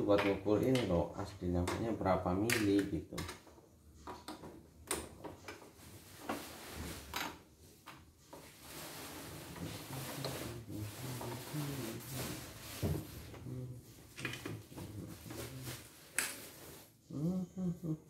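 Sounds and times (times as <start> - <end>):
hands rubbing and handling plastic: 4.0 - 17.0.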